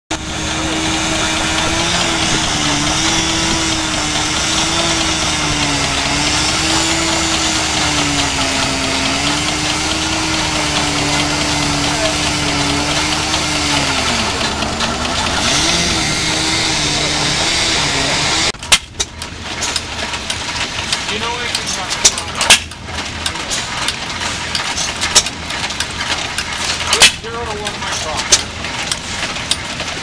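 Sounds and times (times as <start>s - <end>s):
engine droning hum: 0.1s - 30.0s.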